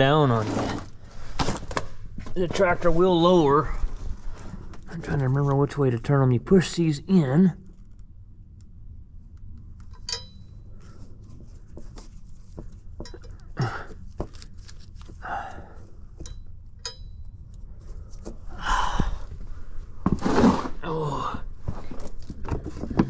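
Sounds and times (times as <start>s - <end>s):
clicks and taps on valve fittings: 12.6s - 13.5s.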